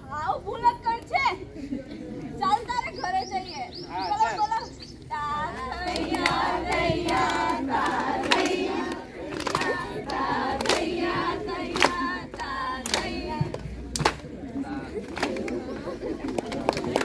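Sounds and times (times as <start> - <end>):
group singing: 5.1 - 16.0
hand claps: 5.9 - 14.4, 15.0 - 17.0.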